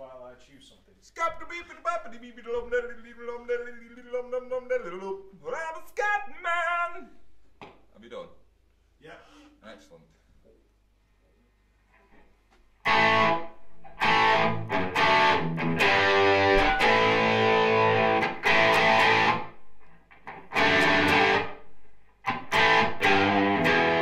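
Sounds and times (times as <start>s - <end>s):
overdriven electric guitar chords: 12.8s - 24.0s.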